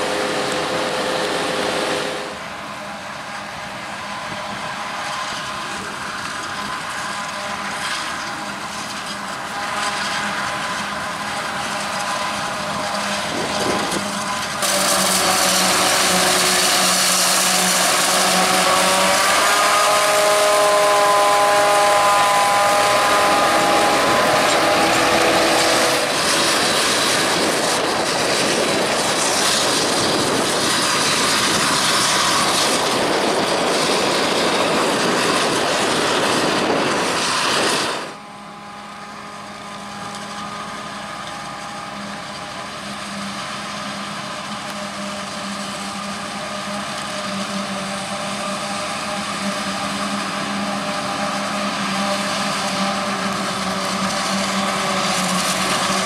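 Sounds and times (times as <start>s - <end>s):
machine hum with whine: 0.0s - 56.0s
forage harvester chopping: 6.4s - 30.5s.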